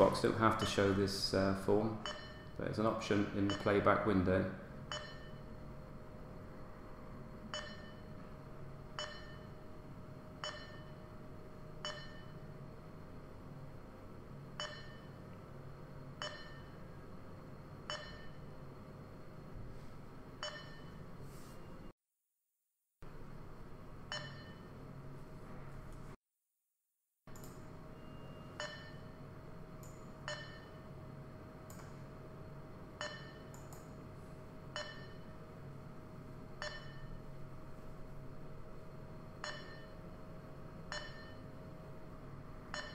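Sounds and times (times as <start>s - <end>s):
steady low hum: 0.0s - 21.9s, 23.0s - 26.2s, 27.3s - 42.9s
short ringing pings: 2.0s - 2.6s, 4.9s - 5.5s, 7.6s - 8.1s, 9.0s - 9.6s, 10.4s - 11.0s, 11.8s - 12.4s, 14.6s - 15.2s, 16.2s - 16.8s, 17.9s - 18.4s, 20.4s - 21.0s, 24.1s - 24.7s, 28.0s - 29.2s, 30.3s - 30.8s, 33.0s - 33.5s, 34.8s - 35.3s, 36.6s - 37.2s, 39.4s - 40.0s, 40.9s - 41.5s
probe clicks with short ring: 39.4s - 39.9s, 40.9s - 41.4s.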